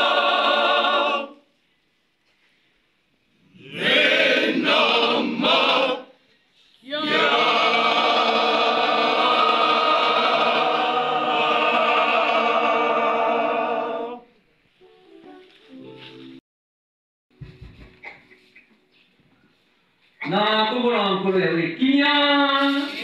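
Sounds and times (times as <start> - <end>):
men's choir singing chords: 0.0 - 1.4, 3.6 - 6.1, 7.0 - 14.3.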